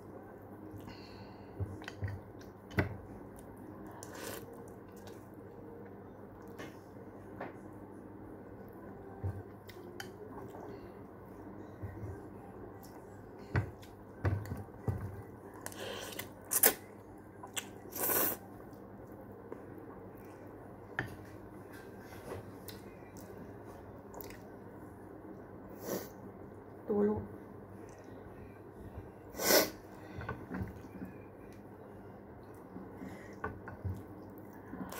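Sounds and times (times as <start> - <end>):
person chewing: 3.9 - 5.2, 15.6 - 18.7.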